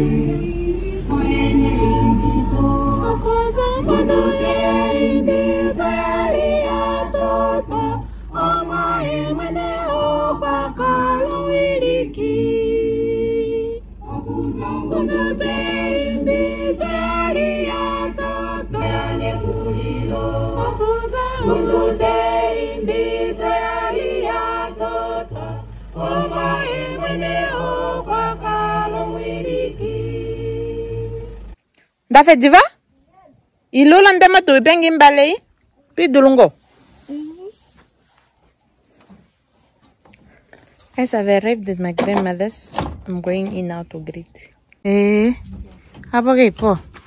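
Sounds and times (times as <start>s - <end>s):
choir singing: 0.0s - 31.6s
steady low hum: 0.0s - 32.1s.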